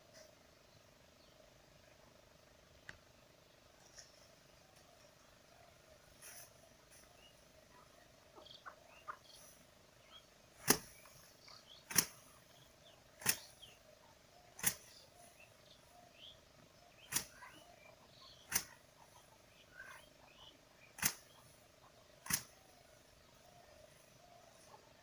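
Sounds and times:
faint steady hum: 0.0 - 25.0
rice sheaves thwacking on stone: 10.6 - 11.0, 13.2 - 13.5.

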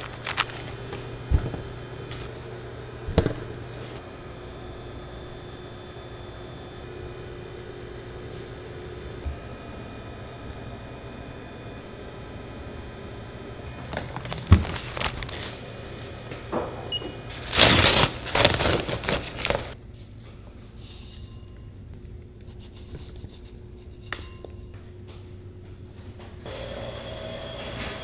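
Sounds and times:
paper sack tearing: 0.0 - 0.8, 14.0 - 15.6, 17.3 - 19.8
paper rustling: 0.0 - 2.3, 13.8 - 15.6, 17.3 - 19.8.

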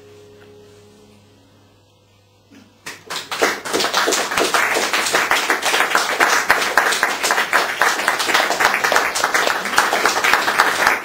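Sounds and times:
audience applause: 2.9 - 11.0.

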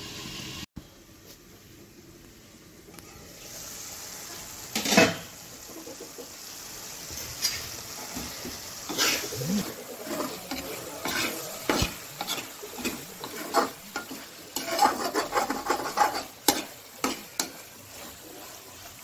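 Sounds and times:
food sizzling: 0.0 - 19.0
spatula scraping pan: 7.2 - 19.0.

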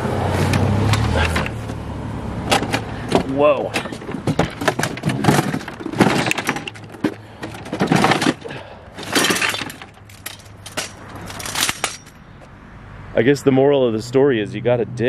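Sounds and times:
junk clattering: 0.4 - 1.8, 2.4 - 12.2
crunching: 2.4 - 12.2.

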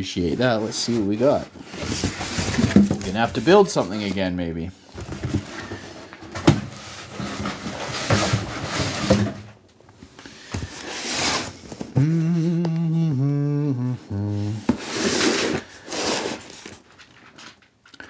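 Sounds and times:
cardboard box scraping and rustling: 0.4 - 4.3, 4.9 - 9.5, 10.6 - 12.0, 14.6 - 16.8
man humming: 11.9 - 14.9.

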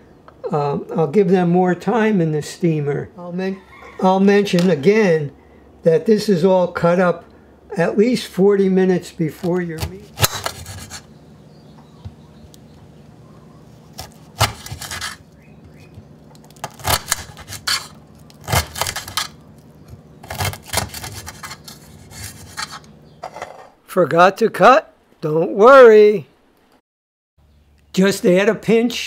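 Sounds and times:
knife cutting on cutting board: 9.5 - 11.1, 13.8 - 15.2, 20.2 - 22.9.

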